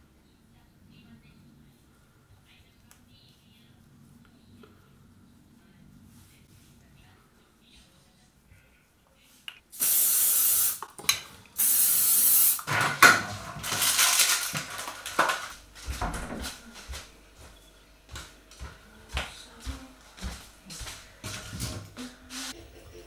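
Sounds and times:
short bursts of hiss: 9.8 - 10.8, 11.6 - 12.6.

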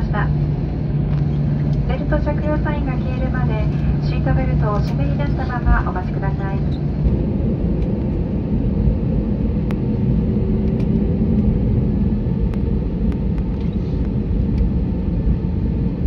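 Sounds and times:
airliner cabin rumble: 0.0 - 16.0.

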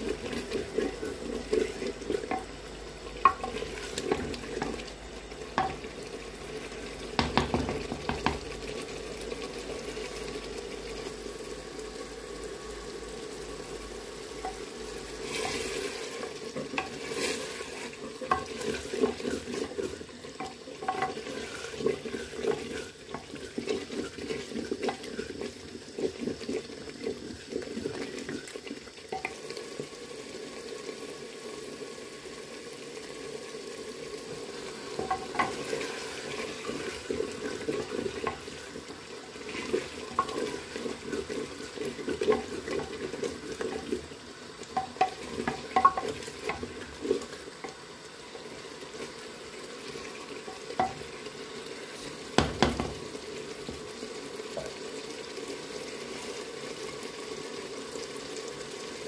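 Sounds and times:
food sizzling in a pot: 0.0 - 59.0
wooden spoon knocking and scraping: 7.2 - 8.5.

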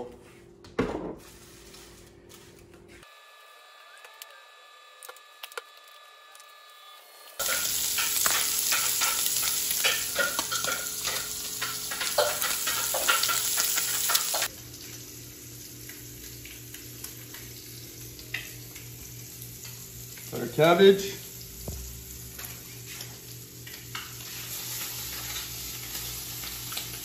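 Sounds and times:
hot oil sizzling in a frying pan: 7.3 - 27.0.

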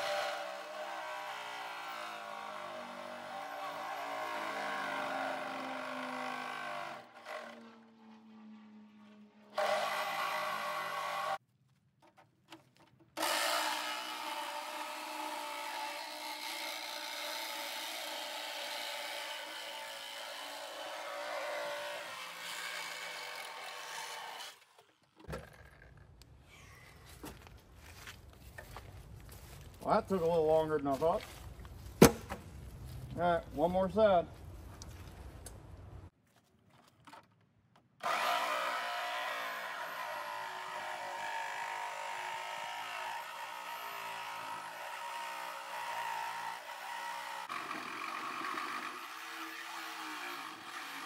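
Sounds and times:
power tool cutting sheet metal: 0.0 - 11.4, 13.2 - 24.7, 38.0 - 51.0.

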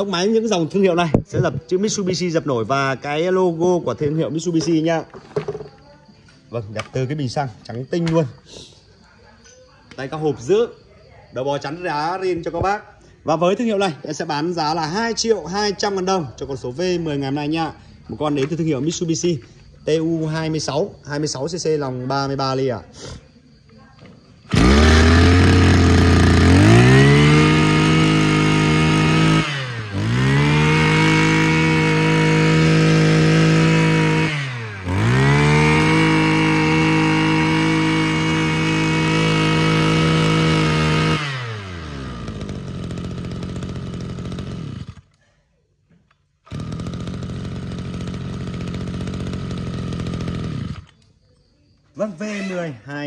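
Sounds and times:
brush cutter engine revving: 24.4 - 45.2, 46.4 - 51.1.

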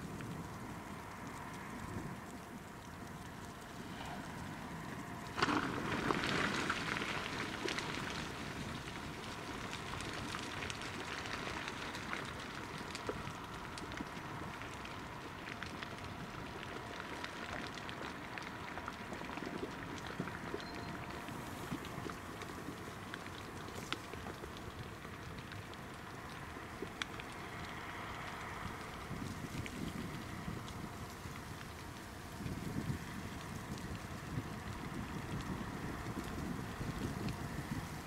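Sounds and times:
dense crackling and pops: 0.0 - 38.0.

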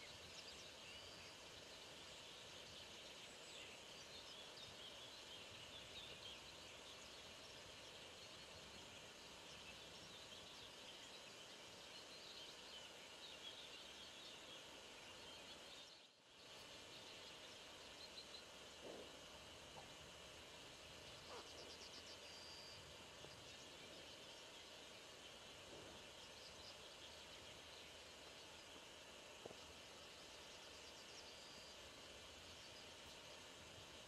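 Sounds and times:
faint birds chirping: 0.0 - 34.0
low outdoor hiss: 0.0 - 34.0.

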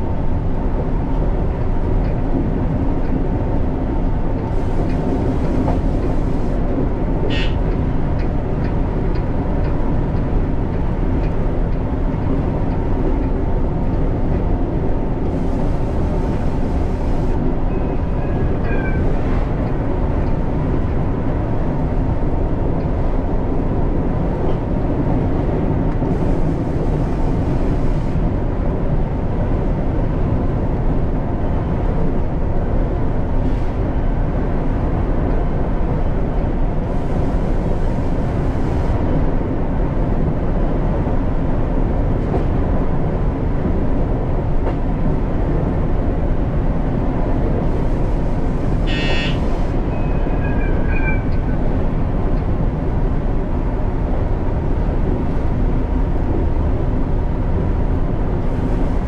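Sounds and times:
train rumbling: 0.0 - 59.0
faint train squeal: 7.3 - 7.6, 17.0 - 19.3, 48.7 - 51.8.

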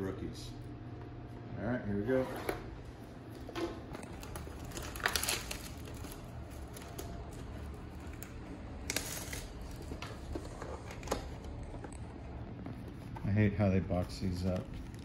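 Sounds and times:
plastic wrapping crinkling: 3.9 - 15.0
cardboard tearing: 4.2 - 7.1, 8.8 - 9.8.

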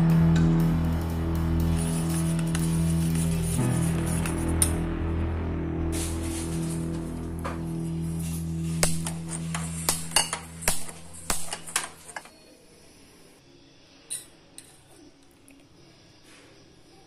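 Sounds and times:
background music: 0.0 - 12.1.

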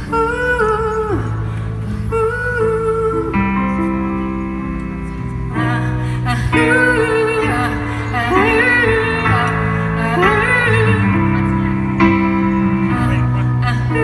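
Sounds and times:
guitar and cello chords: 0.0 - 14.0
wordless vocal line: 5.4 - 14.0.

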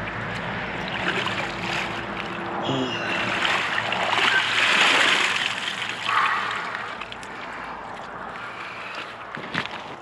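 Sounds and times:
river water splashing: 0.0 - 10.0.

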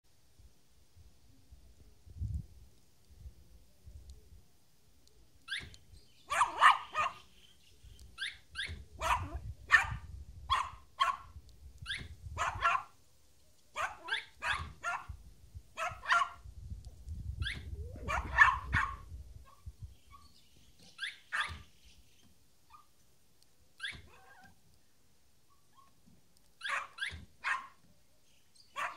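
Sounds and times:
small dog yapping: 6.3 - 7.2, 8.2 - 11.3, 11.9 - 12.9, 13.8 - 15.1, 15.8 - 16.4, 17.4 - 19.6, 21.0 - 21.6, 23.8 - 24.6, 26.6 - 27.8.

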